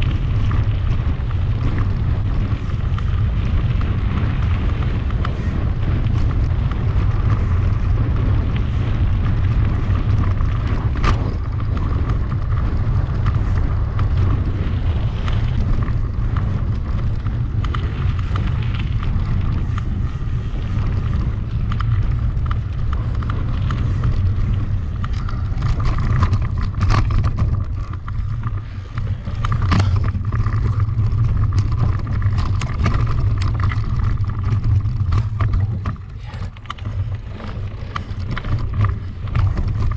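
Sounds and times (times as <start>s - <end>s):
bike knocks and rattles: 0.0s - 39.9s
bike tyre noise: 0.0s - 39.9s
wind rumble on microphone: 0.0s - 39.9s.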